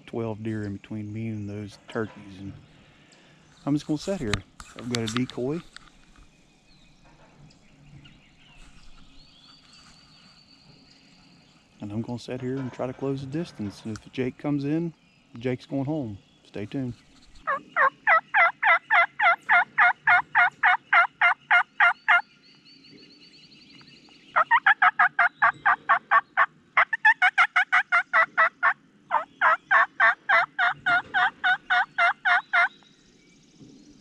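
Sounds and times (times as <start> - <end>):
turkey call raspy yelps: 17.4 - 22.2, 24.4 - 32.7.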